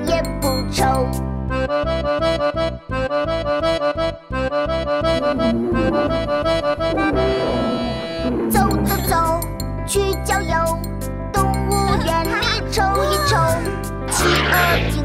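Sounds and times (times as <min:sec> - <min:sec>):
bouncy instrumental melody: 0:01.5 - 0:14.8
regular bass beat: 0:04.1 - 0:09.8.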